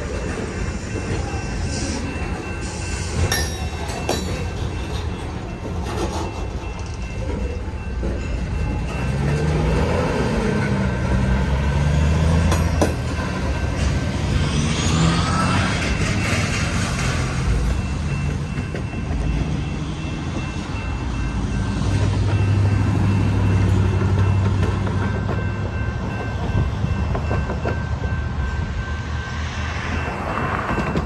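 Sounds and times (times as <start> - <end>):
train wheels rumbling on rail: 0.0 - 31.0
sharp clunk of rail car: 12.3 - 14.1, 30.0 - 31.0.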